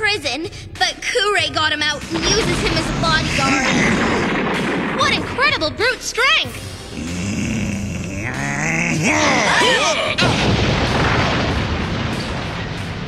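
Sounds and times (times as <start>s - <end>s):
loud rumbling crash: 2.0s - 7.3s, 10.2s - 13.0s
giant's deep groan: 6.8s - 10.3s.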